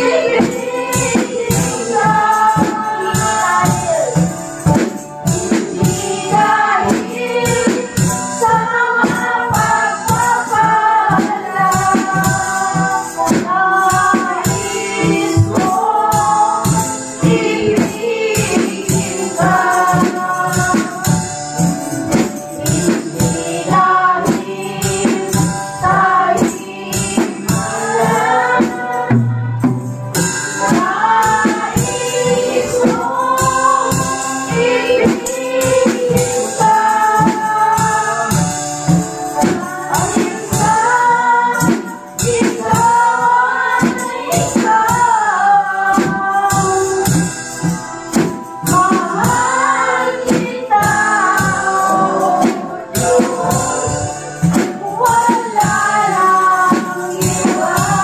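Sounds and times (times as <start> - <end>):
backing singers: 0.0 - 4.2, 48.7 - 58.0
woman singing lead: 0.0 - 4.4, 39.4 - 58.0
drum kit steady beat: 0.0 - 58.0.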